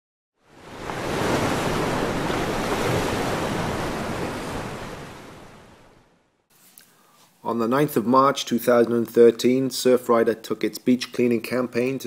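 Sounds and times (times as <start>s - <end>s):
ocean waves breaking: 0.4s - 6.2s.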